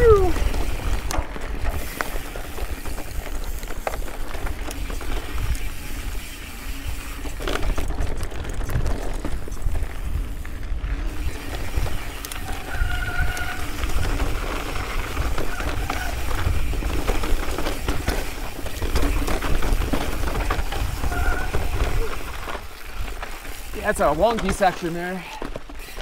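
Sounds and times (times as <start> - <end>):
bike clicking and rattling over rock: 0.1 - 26.0
wind rumble on microphone: 6.8 - 23.2.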